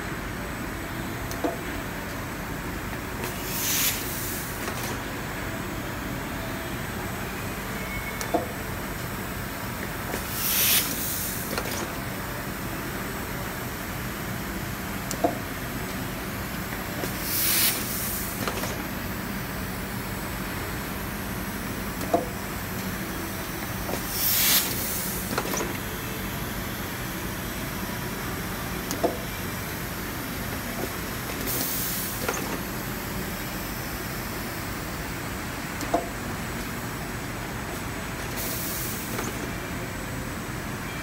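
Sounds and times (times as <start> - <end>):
compressed-air hiss: 3.4 - 4.5, 10.3 - 11.5, 17.2 - 18.4, 24.1 - 25.3, 38.4 - 39.2.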